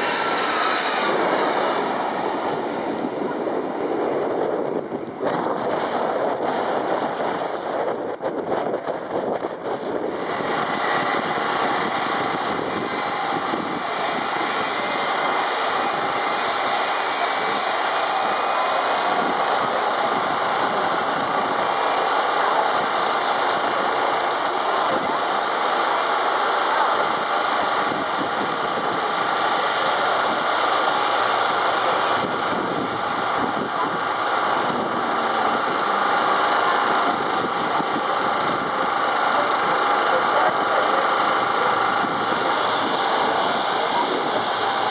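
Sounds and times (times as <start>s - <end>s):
jet engines running: 0.0s - 44.9s.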